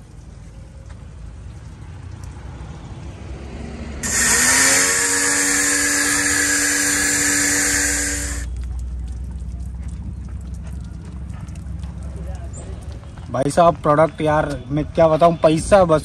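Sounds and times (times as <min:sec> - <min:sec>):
pressure washer motor whine: 0:04.0 - 0:08.5
water jet hissing: 0:04.0 - 0:08.5.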